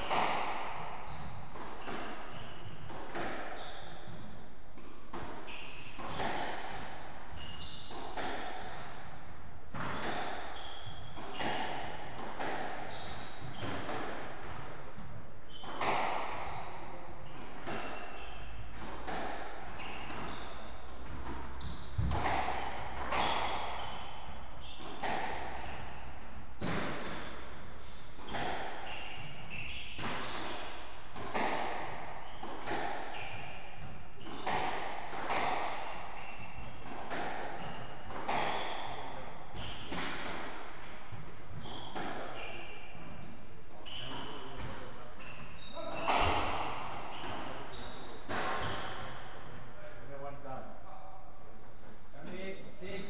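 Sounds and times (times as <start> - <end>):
shoe soles squeaking on wood: 1.0 - 4.3, 5.4 - 6.4, 7.4 - 9.0, 9.8 - 11.8, 12.8 - 25.8, 26.6 - 36.8, 37.4 - 40.0, 41.0 - 49.9
squash ball cracking off rackets: 36.7 - 38.9.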